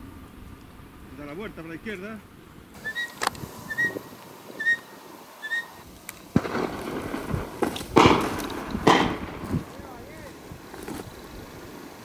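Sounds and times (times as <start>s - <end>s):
small bird chirping: 2.8s - 6.3s
wind rushing: 2.8s - 12.0s
distant shotgun shots with echo: 6.3s - 9.7s.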